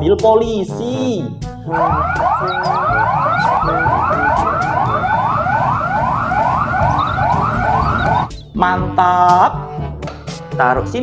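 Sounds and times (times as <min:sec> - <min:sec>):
toy police siren wailing: 0:01.8 - 0:08.3.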